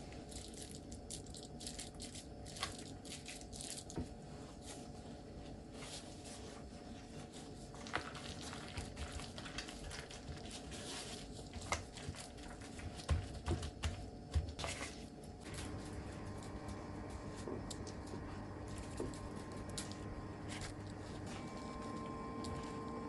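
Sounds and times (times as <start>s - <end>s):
leaves rustling and squishing: 0.0s - 13.2s
faint steady hum: 0.0s - 23.0s.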